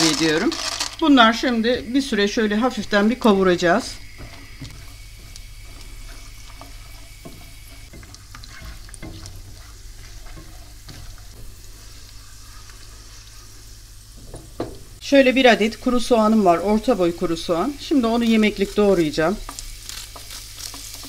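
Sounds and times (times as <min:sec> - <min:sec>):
nuts sizzling in oil: 0:00.0 - 0:21.0
spatula scraping pan: 0:02.8 - 0:13.9, 0:18.0 - 0:21.0.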